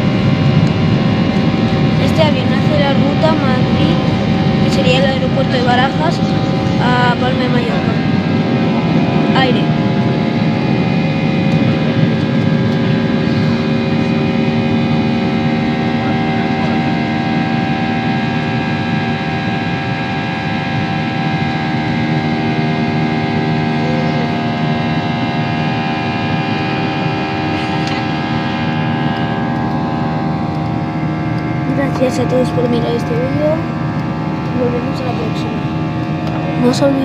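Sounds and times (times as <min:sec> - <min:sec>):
jet engine cabin drone: 0:00.0 - 0:37.0.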